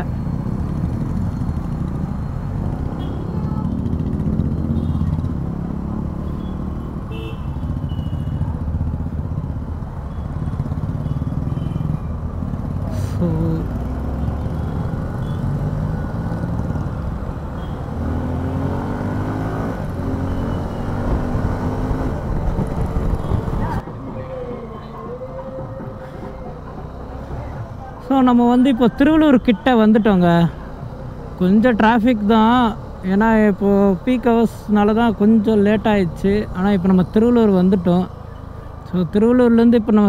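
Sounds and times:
motorcycle engine accelerating: 0.3s - 6.9s, 12.2s - 23.8s
wind rushing over microphone: 21.0s - 23.8s.

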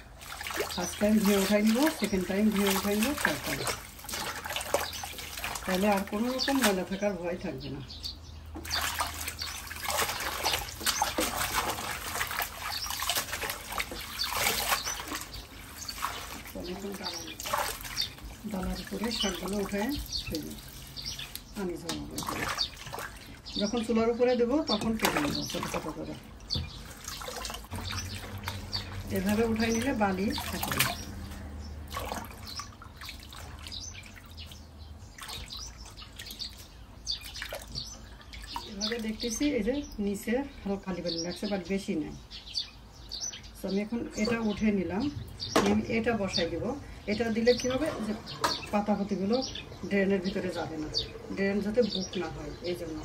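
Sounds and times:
water sloshing in a sink: 0.0s - 7.6s, 8.5s - 39.9s.

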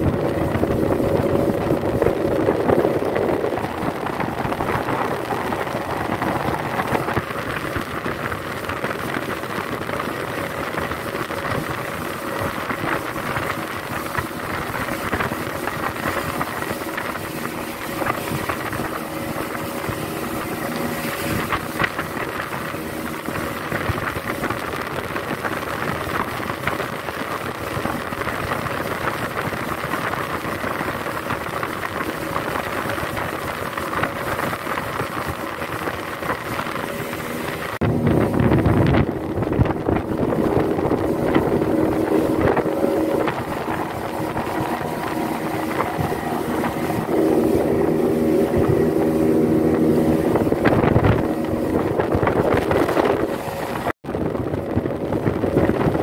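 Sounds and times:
outboard motor running: 0.0s - 56.0s
water rushing past hull: 0.0s - 56.0s
wind on microphone: 0.0s - 56.0s.

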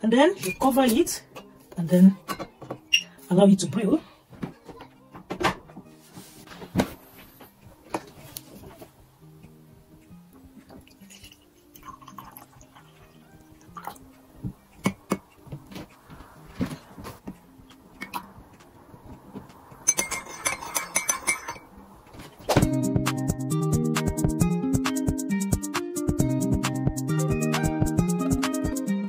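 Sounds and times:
soft background music: 0.0s - 29.0s
tea pouring: 10.8s - 14.0s
teapot and mug clinking: 10.8s - 14.0s, 18.0s - 18.3s, 19.8s - 21.7s.

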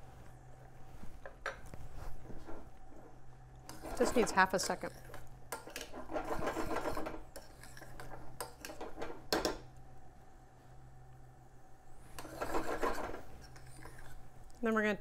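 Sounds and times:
metal spoon scraping a pan: 3.7s - 9.1s, 12.1s - 14.2s.

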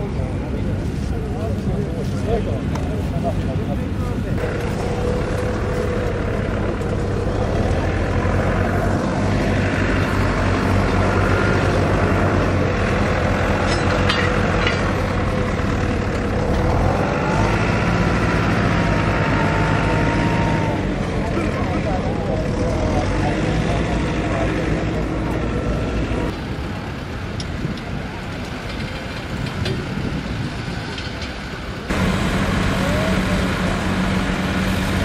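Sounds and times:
machinery engine drone: 0.0s - 35.0s.

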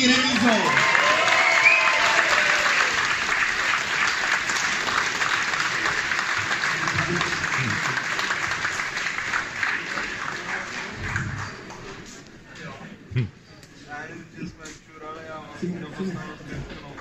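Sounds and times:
audience applauding: 0.0s - 12.1s.

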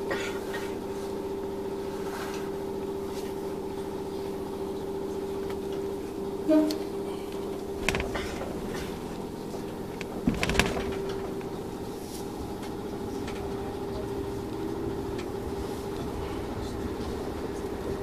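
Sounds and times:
train cab hum: 0.0s - 18.0s
train clunks and clicks: 6.5s - 18.0s.

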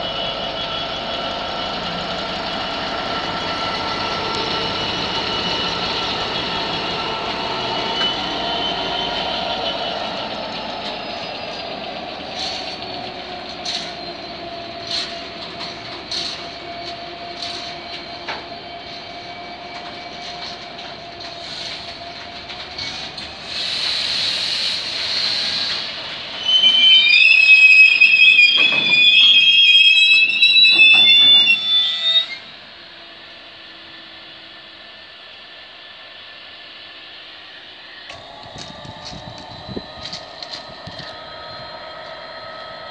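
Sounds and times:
high-pitched wheel squeal: 0.0s - 23.1s, 25.1s - 32.6s, 38.1s - 42.9s
diesel locomotive engine: 0.0s - 42.9s
wagon wheels clicking over rail joint: 10.7s - 18.5s.

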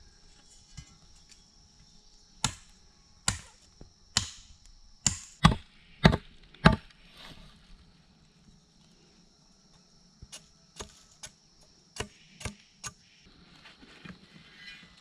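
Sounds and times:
machete chopping bamboo: 2.4s - 6.9s, 10.3s - 11.4s, 12.0s - 13.0s.

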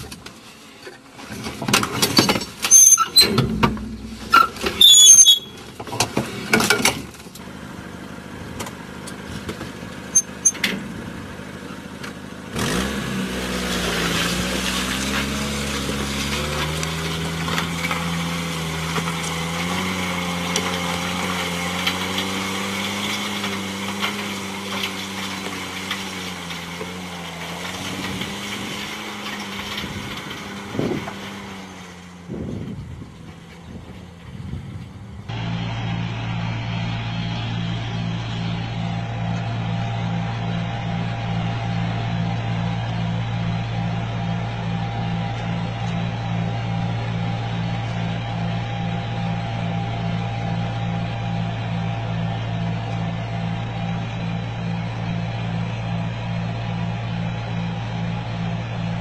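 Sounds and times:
car engine under load: 0.0s - 59.0s
metal lever clanks: 2.0s - 5.6s.

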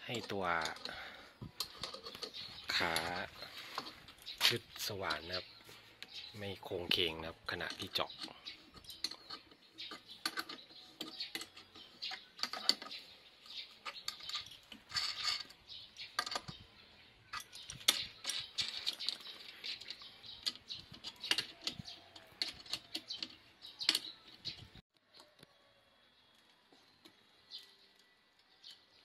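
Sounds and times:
metallic clicks and clinks: 0.0s - 4.6s, 7.5s - 16.6s, 17.3s - 24.8s.

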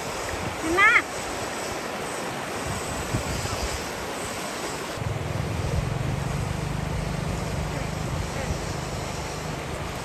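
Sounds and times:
rushing floodwater: 0.0s - 10.0s
engine humming: 5.0s - 10.0s.

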